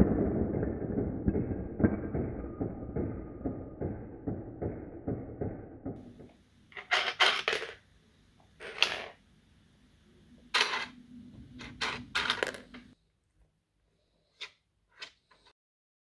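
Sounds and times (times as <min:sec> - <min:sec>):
plastic game pieces clattering: 0:11.6 - 0:12.8.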